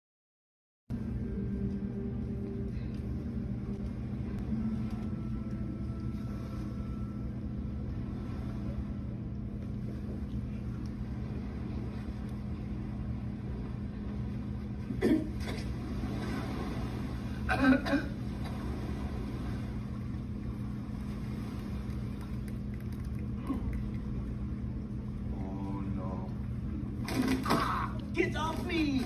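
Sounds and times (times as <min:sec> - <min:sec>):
faint held low tones: 0:00.9 - 0:15.2
low rumble: 0:00.9 - 0:29.0.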